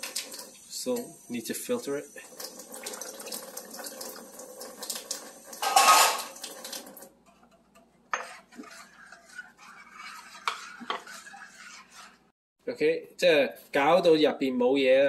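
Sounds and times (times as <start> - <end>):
water pouring into saucepan: 0.0 - 7.1
spoon scraping metal pot: 5.6 - 6.4, 7.2 - 12.4.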